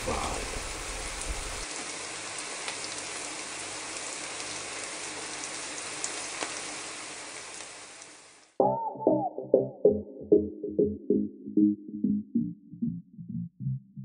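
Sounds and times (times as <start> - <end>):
stew simmering with sizzling hiss: 0.0 - 8.6.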